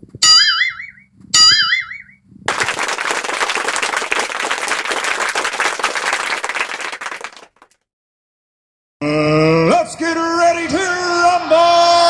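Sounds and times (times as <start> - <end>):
crowd applauding: 2.5 - 7.8.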